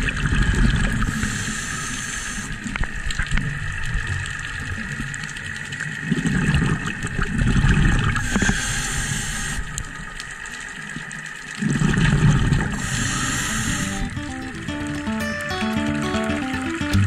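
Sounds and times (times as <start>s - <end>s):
underwater exhaled bubbles rumbling: 0.0s - 1.4s, 2.6s - 8.6s, 9.4s - 14.2s
regulator inhale hiss: 1.0s - 2.7s, 8.1s - 9.8s, 12.7s - 14.1s.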